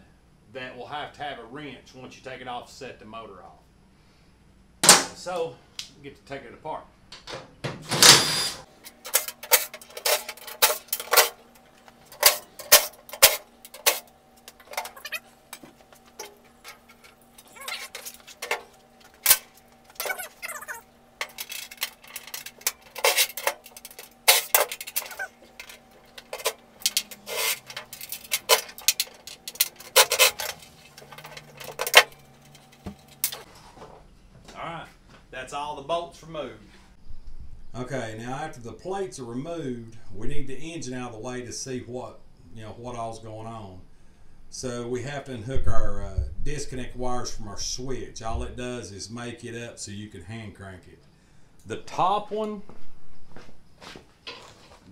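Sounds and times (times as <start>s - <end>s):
faint steady hum: 0.0s - 54.9s
impact driver bursts: 7.8s - 8.7s.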